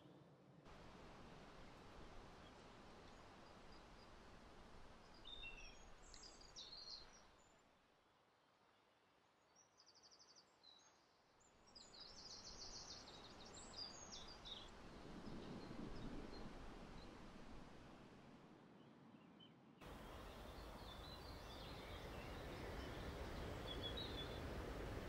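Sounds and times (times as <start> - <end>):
outdoor background hiss: 0.7 - 9.1, 19.8 - 25.0
songbird chirping and trilling: 19.8 - 24.5.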